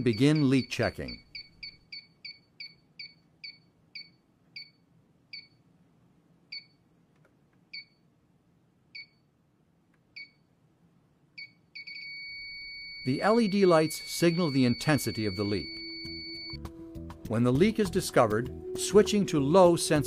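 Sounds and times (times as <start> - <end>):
gas leak detector beeping: 0.0 - 4.8, 11.4 - 16.6.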